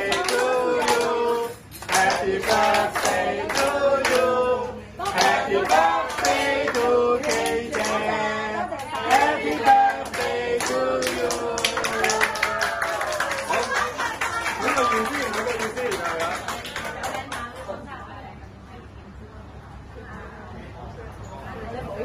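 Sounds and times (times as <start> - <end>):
hands clapping: 0.0 - 4.3, 5.1 - 8.0, 8.8 - 17.7
voices singing: 0.0 - 12.3.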